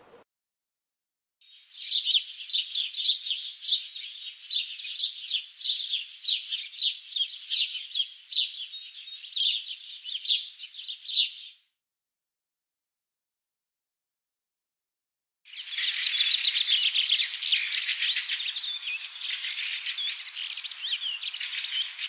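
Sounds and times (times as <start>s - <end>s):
nestlings begging chirps: 15.5s - 22.0s.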